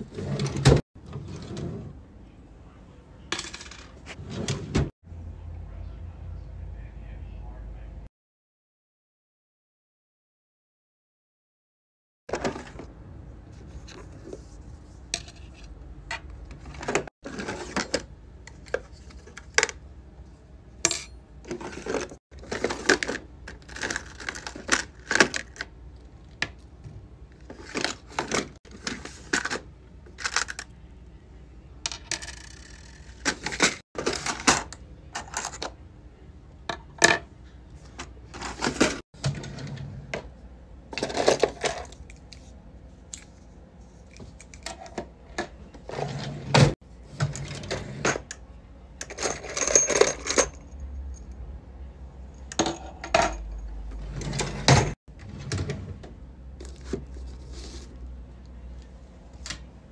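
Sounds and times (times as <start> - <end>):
plastic cases and key rings clattering: 20.9 - 25.6, 27.5 - 30.8, 49.0 - 51.3.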